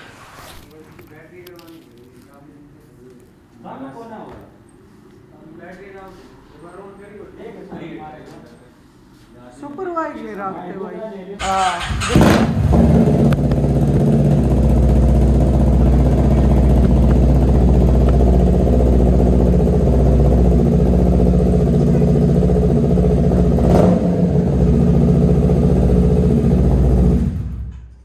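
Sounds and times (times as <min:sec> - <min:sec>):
motorcycle engine idling: 0:11.4 - 0:27.8.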